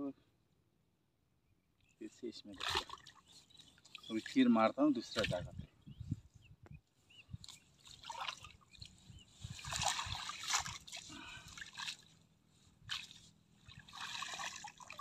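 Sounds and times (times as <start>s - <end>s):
water splashing and trickling: 2.3s - 5.6s, 7.4s - 15.0s.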